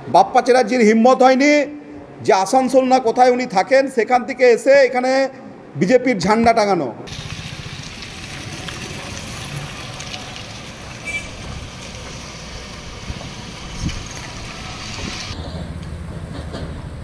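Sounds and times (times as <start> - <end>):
hiss: 11.6 - 15.4.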